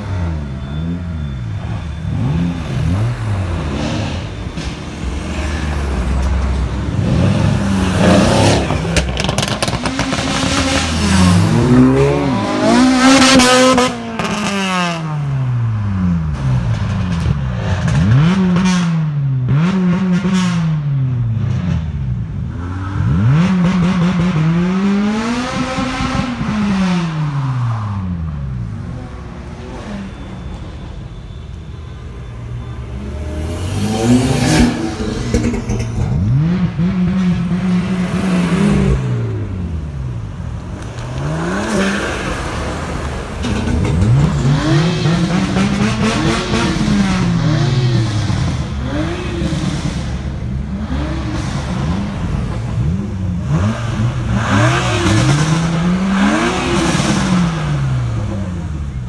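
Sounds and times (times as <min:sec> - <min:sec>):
cars revving and accelerating past: 0:00.0 - 0:59.0.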